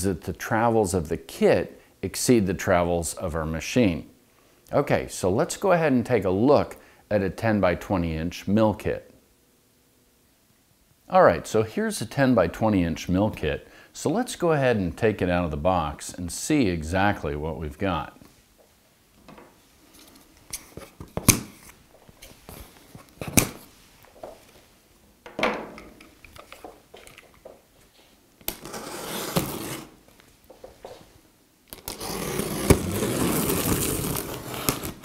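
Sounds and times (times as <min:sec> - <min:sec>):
knife cutting packing tape: 0:23.2 - 0:23.7, 0:28.5 - 0:30.0, 0:31.7 - 0:35.0.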